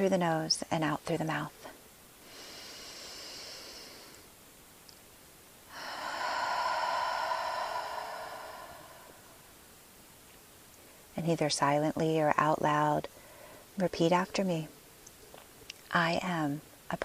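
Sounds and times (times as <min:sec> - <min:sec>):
woman inhaling through nose: 0:02.2 - 0:04.3, 0:05.7 - 0:09.5
woman exhaling through mouth: 0:05.7 - 0:09.5.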